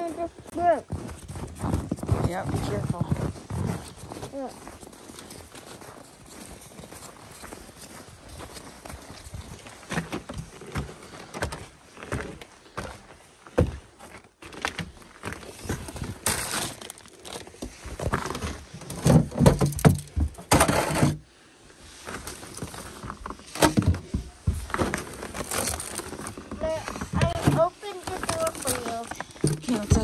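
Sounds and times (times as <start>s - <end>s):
footsteps in snow: 0.0s - 14.5s
knocks and thuds: 18.9s - 21.2s
rustling: 21.9s - 30.0s.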